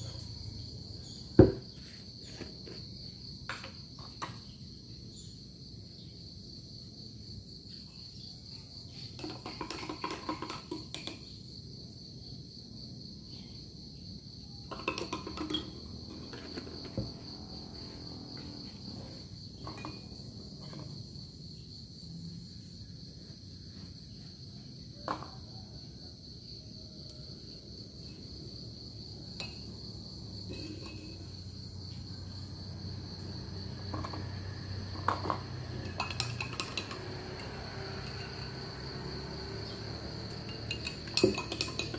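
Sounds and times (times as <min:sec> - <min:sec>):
crickets trilling: 0:00.0 - 0:41.9
spoon clinking against glass jar: 0:14.7 - 0:16.6, 0:30.4 - 0:31.4, 0:35.0 - 0:38.8, 0:40.3 - 0:41.9.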